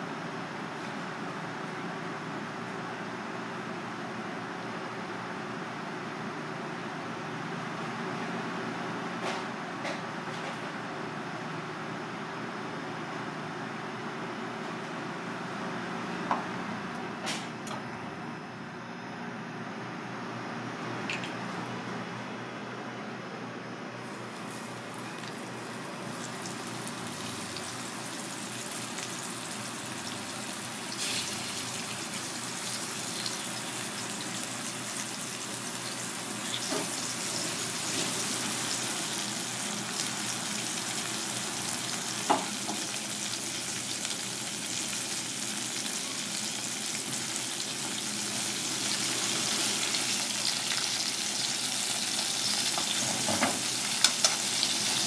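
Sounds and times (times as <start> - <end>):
food frying in hot oil: 24.0 - 55.0.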